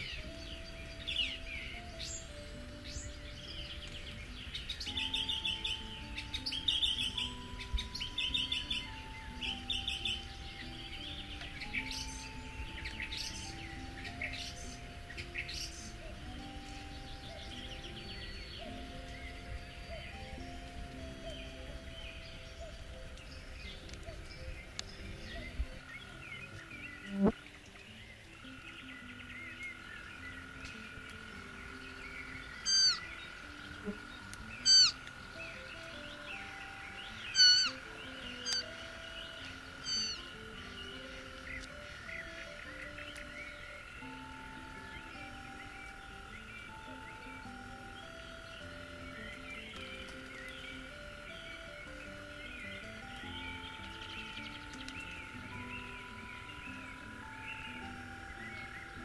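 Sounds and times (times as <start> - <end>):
bird chirps: 0.0 - 59.0
frogs calling: 0.0 - 59.0
soft background music: 0.0 - 59.0
songbird twittering: 0.0 - 59.0.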